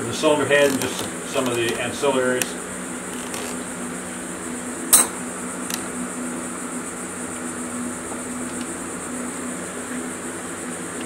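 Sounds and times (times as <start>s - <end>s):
steady machine hum: 0.0s - 11.0s
sharp metal clank: 4.9s - 5.3s.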